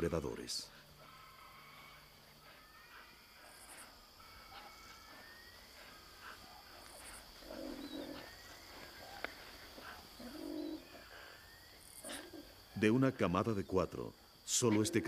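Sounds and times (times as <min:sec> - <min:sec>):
low cooing call: 0:01.0 - 0:12.8
birds chirping and whistling: 0:01.1 - 0:13.0.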